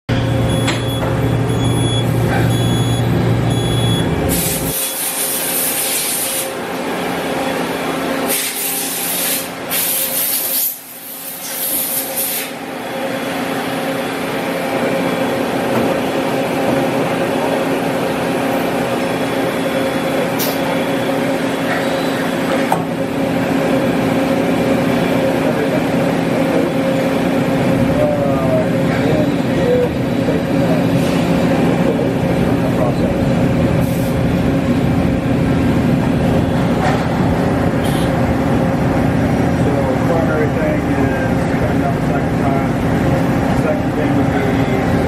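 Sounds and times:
short high beeps: 0:00.1 - 0:04.1
machining center hum and whine: 0:00.1 - 0:45.0
coolant spray hiss: 0:04.3 - 0:06.5, 0:08.3 - 0:12.6.

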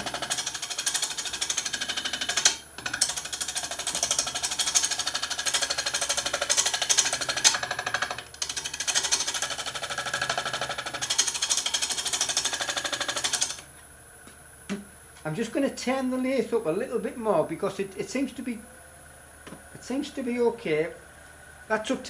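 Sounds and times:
lathe tool rattling on wood: 0:00.0 - 0:13.6.

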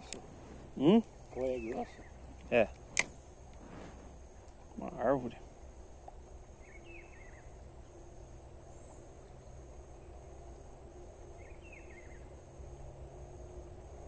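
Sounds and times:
bird chirping call: 0:06.6 - 0:07.6, 0:11.4 - 0:12.3.

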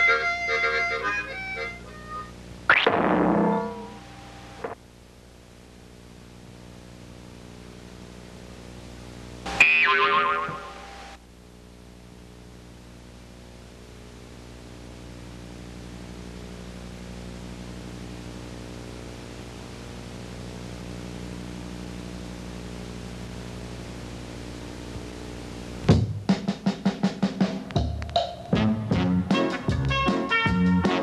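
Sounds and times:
low hum with fixed tones: 0:00.0 - 0:26.0
background hiss: 0:00.0 - 0:31.0
pitched sound effect: 0:02.7 - 0:04.8.

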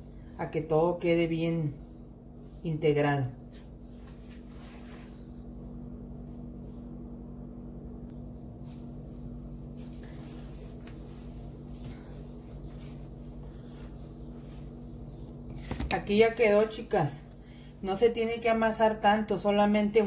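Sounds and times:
steady low hum: 0:00.0 - 0:20.0
hands kneading dough on tile: 0:08.4 - 0:17.4.

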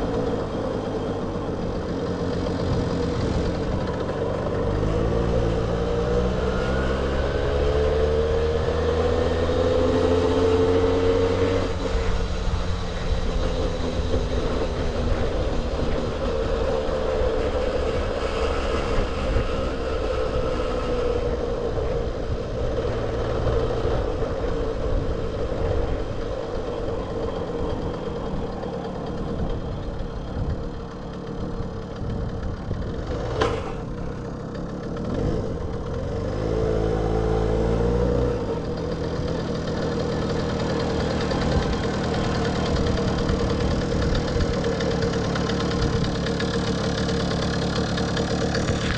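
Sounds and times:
moped engine revving: 0:00.0 - 0:48.9.

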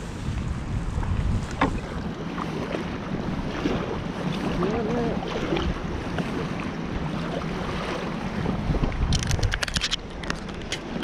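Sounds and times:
wind on microphone: 0:00.0 - 0:11.0
river water rushing: 0:01.6 - 0:08.9.

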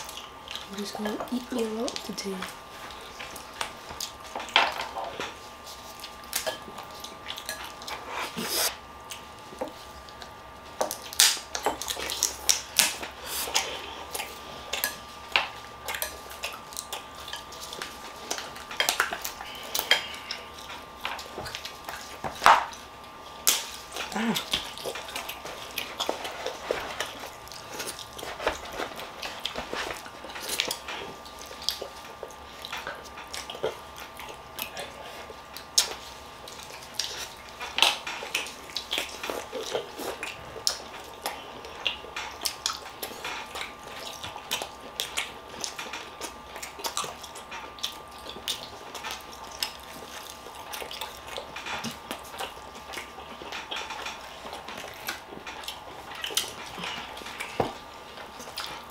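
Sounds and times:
chewing: 0:00.0 - 0:58.9
faint steady hum: 0:00.0 - 0:58.9.

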